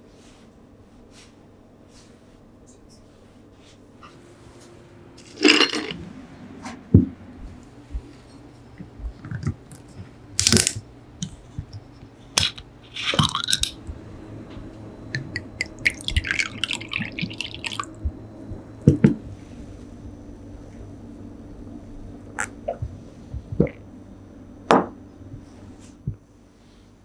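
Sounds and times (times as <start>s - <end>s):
liquid glugging into a cup: 15.6s - 17.9s.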